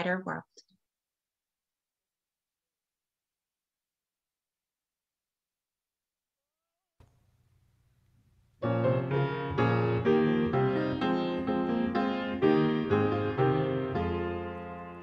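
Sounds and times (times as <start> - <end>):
piano playing: 8.6 - 15.0.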